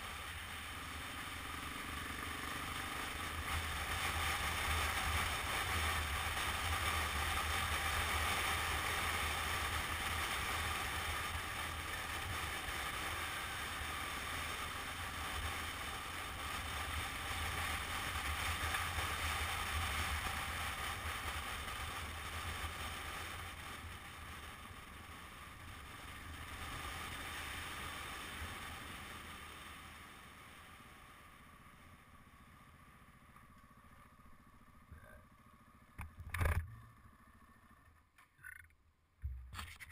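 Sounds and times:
motorcycle engine droning: 0.0s - 39.7s.

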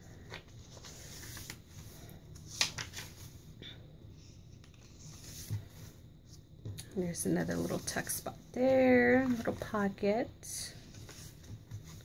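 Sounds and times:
paper pages rustling: 0.1s - 3.4s, 9.1s - 9.8s, 10.8s - 12.0s.

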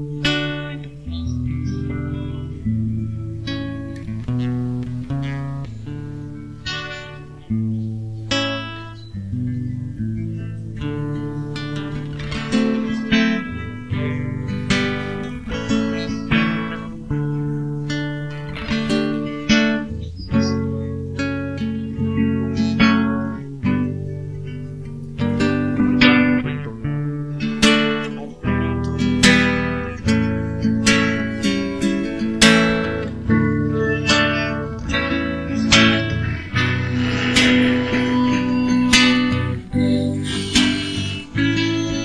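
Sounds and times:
acoustic guitar chords: 0.0s - 42.0s.

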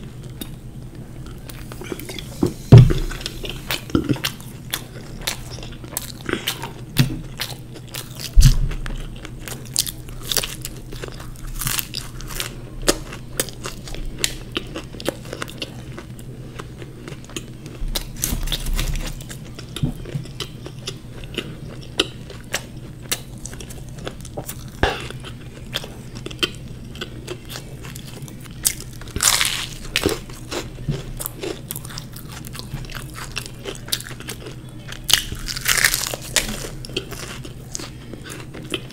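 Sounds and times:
crunchy chewing: 0.0s - 38.9s
loud thump: 2.7s - 3.1s.

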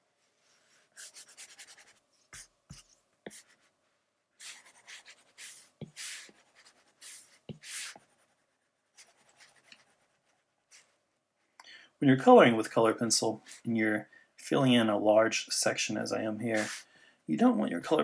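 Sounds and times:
stylus scratching on tablet screen: 1.0s - 3.7s, 4.4s - 11.0s.

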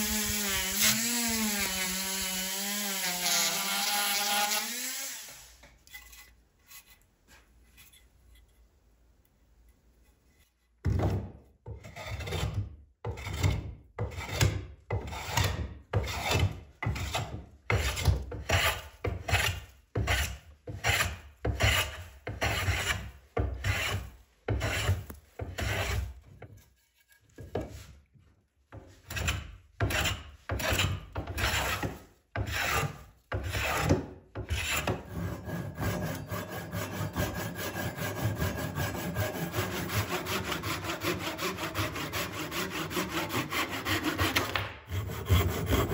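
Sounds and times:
hand saw cutting wood: 0.0s - 7.0s, 11.7s - 27.9s, 28.8s - 45.9s
hand plane shaving wood: 11.9s - 27.9s, 28.8s - 45.9s.

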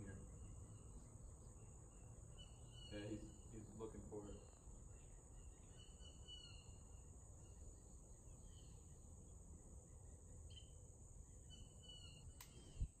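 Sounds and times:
bird chirps: 0.0s - 9.0s, 10.4s - 13.0s
high insect drone: 0.0s - 13.0s
sharp click: 12.3s - 12.6s.

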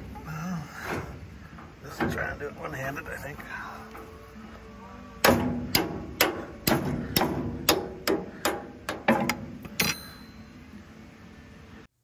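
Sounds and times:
hammer striking metal: 5.2s - 10.6s.

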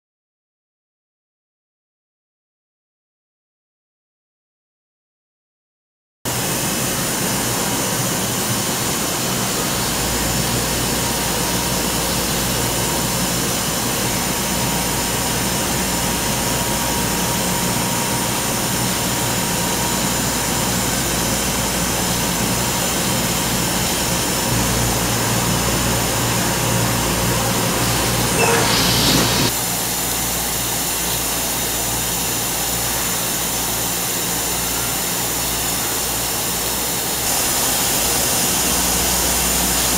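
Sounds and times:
laser cutting machine running: 6.3s - 39.9s
loud rushing burst: 26.6s - 29.6s.

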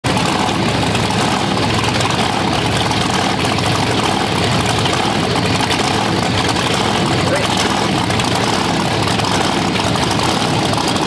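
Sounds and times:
loud car engine idling: 0.0s - 11.0s.

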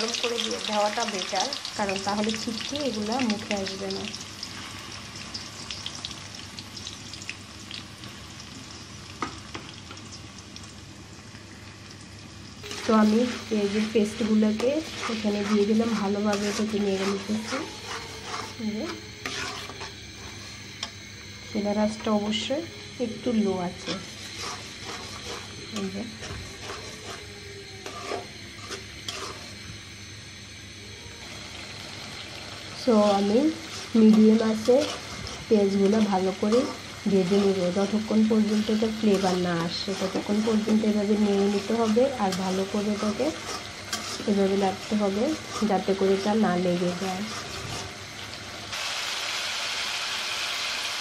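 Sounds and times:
paste sizzling in hot oil: 0.0s - 20.8s, 21.6s - 30.6s, 31.2s - 51.0s
metal spatula scraping pan: 12.6s - 20.5s, 23.7s - 29.5s, 33.0s - 48.0s.

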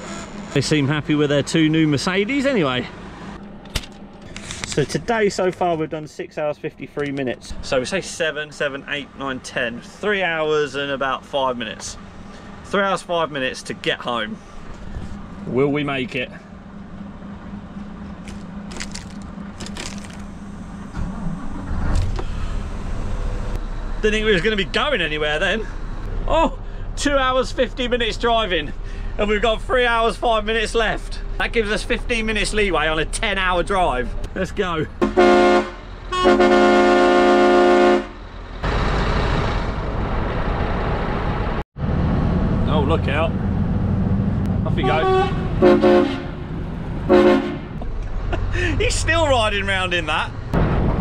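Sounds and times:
road noise: 0.0s - 51.0s
truck engine rumbling: 0.0s - 51.0s
truck horn blast: 35.0s - 38.3s, 44.7s - 47.8s.

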